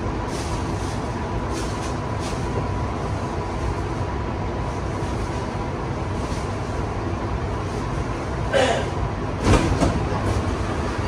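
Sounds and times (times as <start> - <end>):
faint constant whine: 0.0 - 11.0
train car low rumble: 0.0 - 11.0.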